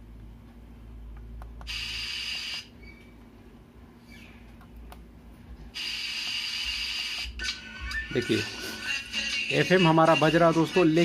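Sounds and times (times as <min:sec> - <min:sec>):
amplifier low hum: 0:00.0 - 0:05.8.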